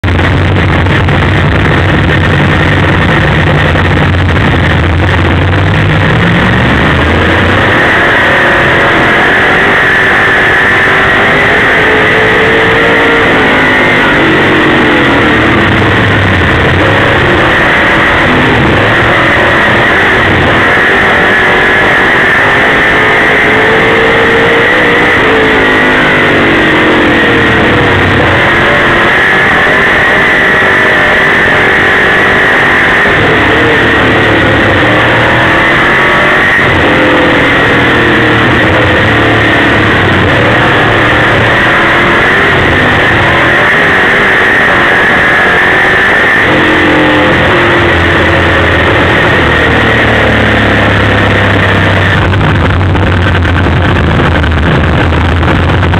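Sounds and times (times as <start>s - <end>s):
race car engine revving: 0.0s - 55.9s.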